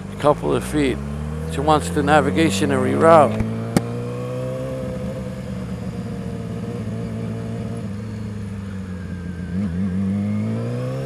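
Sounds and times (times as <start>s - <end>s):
motorcycle engine at low revs: 0.0s - 11.0s.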